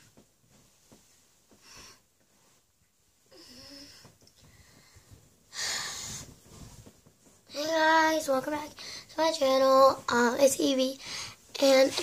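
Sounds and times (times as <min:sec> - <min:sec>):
girl breathing softly: 0:03.3 - 0:06.4, 0:08.8 - 0:09.2, 0:11.0 - 0:11.5.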